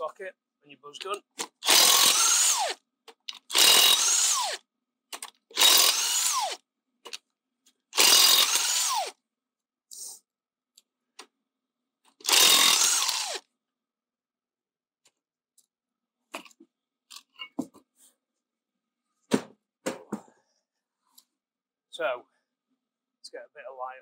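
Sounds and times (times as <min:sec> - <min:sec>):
impact wrench bursts: 0:01.4 - 0:04.6, 0:05.5 - 0:06.6, 0:08.0 - 0:09.2, 0:12.2 - 0:13.4.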